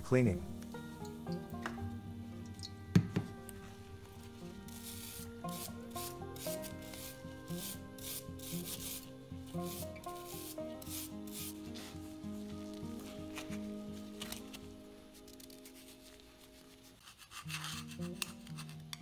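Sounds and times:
soft background music: 0.0s - 19.0s
wire brush scrubbing metal: 4.6s - 11.9s, 17.0s - 18.7s.

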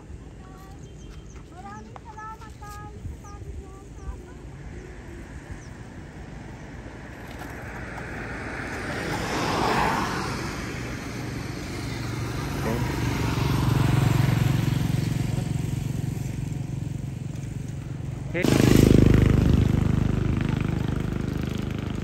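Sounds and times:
vehicle passing with rush: 3.1s - 22.0s
low engine rumble: 10.2s - 22.0s.

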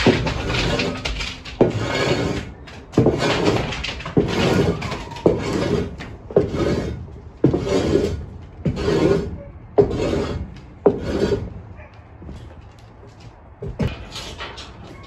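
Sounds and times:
snow shovel scraping wooden boards: 0.0s - 11.7s.

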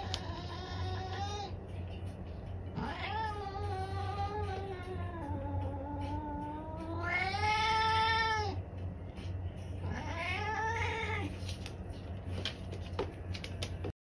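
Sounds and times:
cat yowling: 2.8s - 8.6s, 9.8s - 11.3s.

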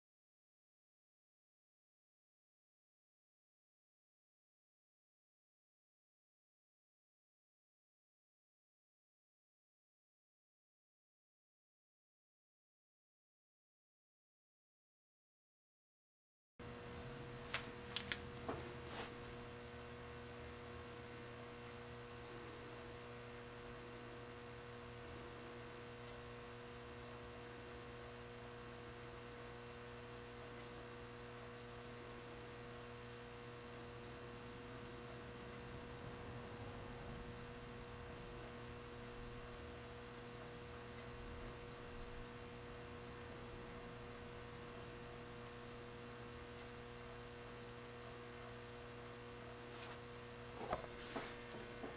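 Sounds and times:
faint electrical hum: 16.6s - 51.9s
clicks: 17.5s - 18.5s.

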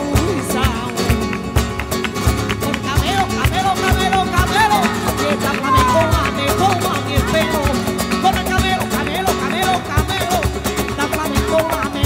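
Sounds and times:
person singing: 0.0s - 1.6s, 2.4s - 12.0s
acoustic guitars strumming: 0.0s - 12.0s.

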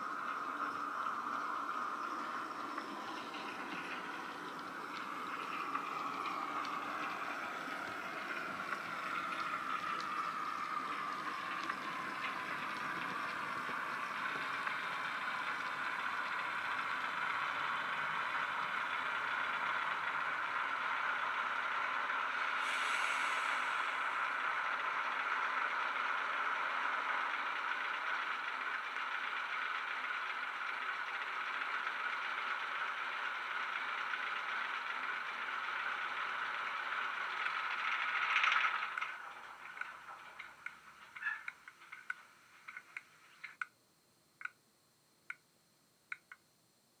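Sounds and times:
diesel engine sound through small speaker: 0.0s - 43.7s
sharp clicks: 44.4s - 44.6s, 46.1s - 46.5s.

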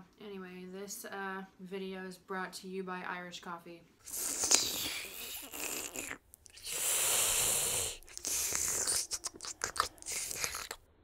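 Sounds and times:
person slurping drink: 4.0s - 10.9s.

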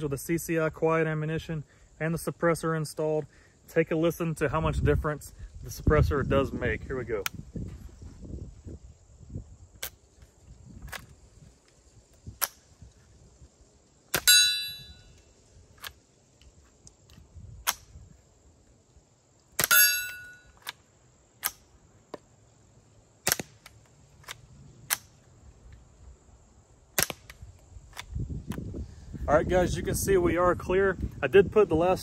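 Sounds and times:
bullet striking steel target: 14.1s - 15.0s, 19.6s - 20.5s.

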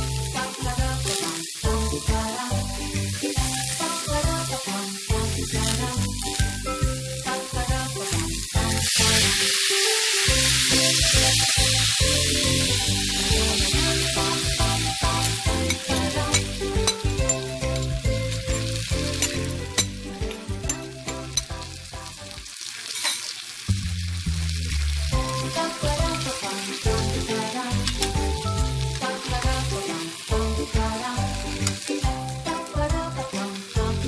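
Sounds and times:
background music: 0.0s - 22.6s, 24.4s - 34.0s
food sizzling in a frying pan: 0.0s - 34.0s
sauce pouring: 7.5s - 30.8s.

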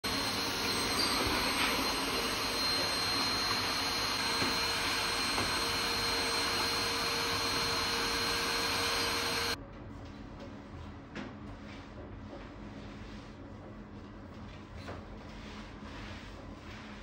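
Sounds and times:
vacuum cleaner running: 0.0s - 9.6s.

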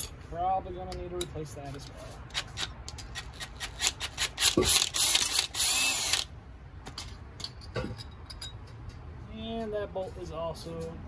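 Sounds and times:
cordless power driver whirring: 3.9s - 6.3s.

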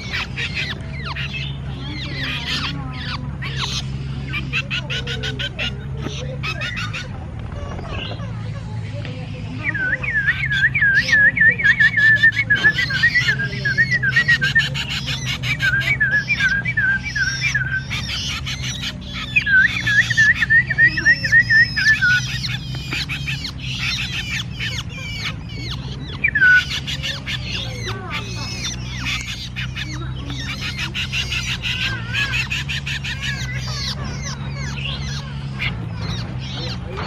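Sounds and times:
harsh chattering bird calls: 0.0s - 37.0s
songbird whistled notes: 9.5s - 37.0s.

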